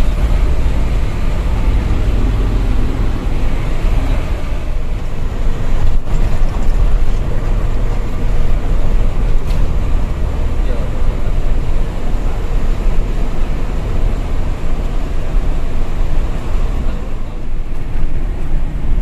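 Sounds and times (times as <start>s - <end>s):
diesel truck engine drone: 0.0s - 19.0s
road noise: 0.0s - 19.0s.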